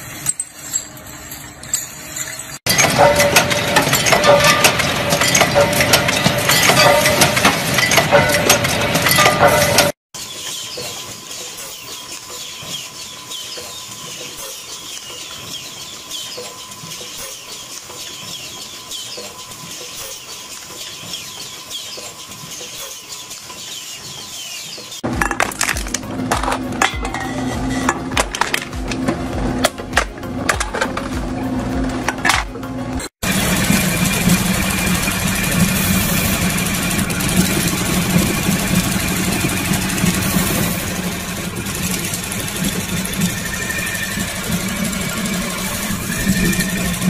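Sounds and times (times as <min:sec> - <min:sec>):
dense metal clatter: 0:01.3 - 0:10.0.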